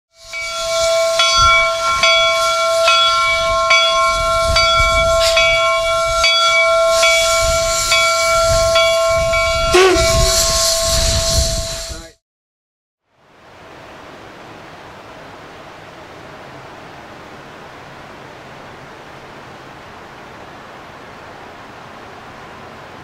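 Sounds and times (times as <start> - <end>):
steam whistle blast: 0.1 - 12.2
steam hiss: 0.2 - 12.2.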